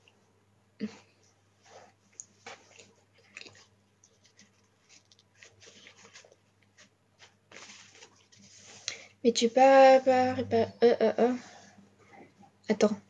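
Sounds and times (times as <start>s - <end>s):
low steady hum: 0.0s - 13.0s
faint clicks and rustles: 1.1s - 9.2s.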